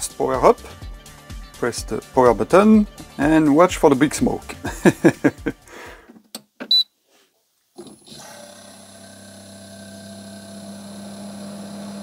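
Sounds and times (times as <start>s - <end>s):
fridge compressor humming: 8.5s - 12.0s.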